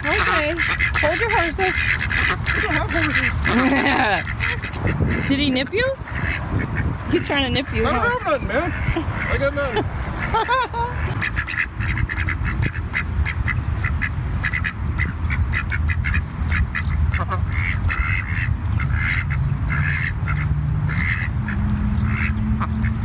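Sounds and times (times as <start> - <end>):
ducks quacking: 0.0 - 23.0
steady low rumble: 0.0 - 23.0.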